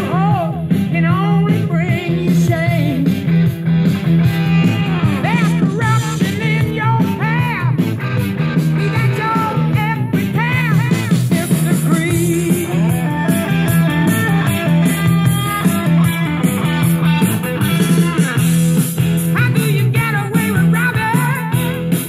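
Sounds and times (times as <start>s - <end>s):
song with vocal and band: 0.0s - 22.0s.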